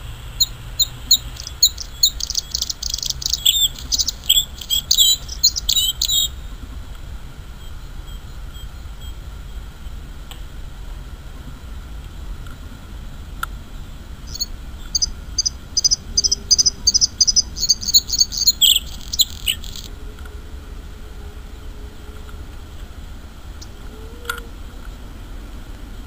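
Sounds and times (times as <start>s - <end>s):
low steady rumble: 0.0s - 26.0s
bird singing: 0.4s - 6.4s, 7.6s - 9.7s, 14.3s - 19.9s.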